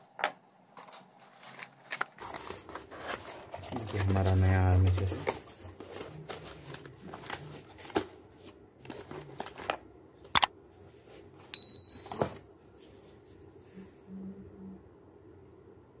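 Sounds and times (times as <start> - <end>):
cardboard box rustling and scraping: 0.8 - 9.8.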